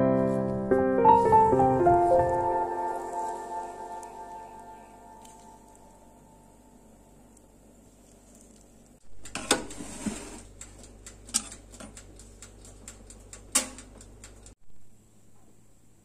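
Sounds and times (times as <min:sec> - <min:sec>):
batter scraping: 0:07.8 - 0:10.6.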